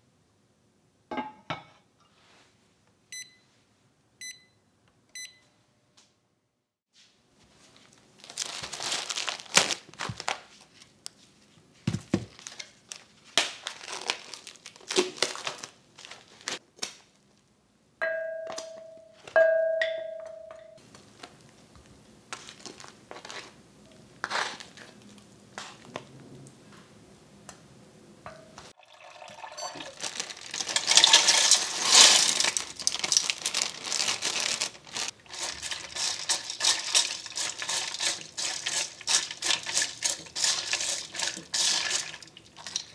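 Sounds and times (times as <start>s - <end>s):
short electronic beeps: 4.2s - 4.6s
plastic wrapping crinkling: 7.7s - 11.2s, 11.9s - 17.2s, 22.3s - 23.6s, 29.1s - 42.9s
stirring and rinsing by hand: 28.7s - 42.9s
tap water running: 28.8s - 32.5s, 35.2s - 42.9s.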